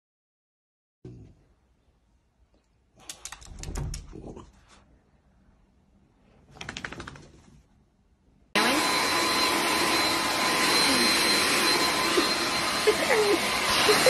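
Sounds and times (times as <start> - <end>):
vacuum brush whining: 8.6 - 14.0.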